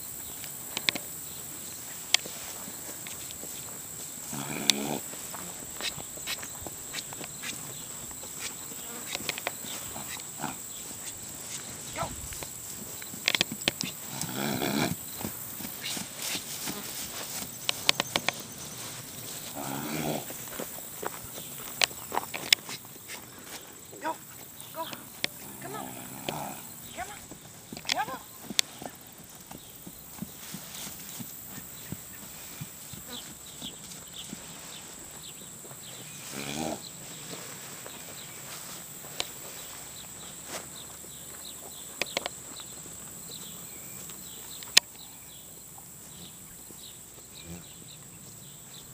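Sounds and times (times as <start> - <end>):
horse nickering: 4.2 - 5.1, 13.9 - 15.0, 19.5 - 20.4, 25.4 - 26.7
sharp clicks: 17.6 - 18.4, 21.8 - 22.6.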